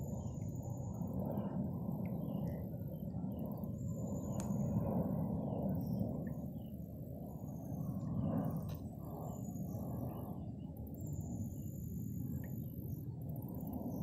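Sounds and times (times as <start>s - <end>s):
click: 4.4s - 4.6s.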